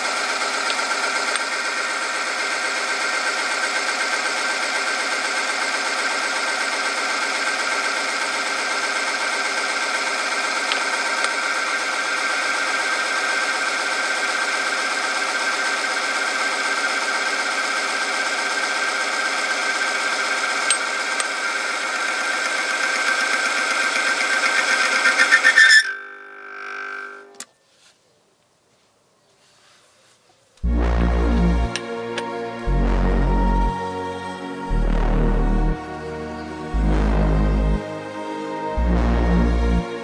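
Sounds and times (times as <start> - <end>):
machine grinding whine: 6.3 - 27.5, 34.7 - 38.1.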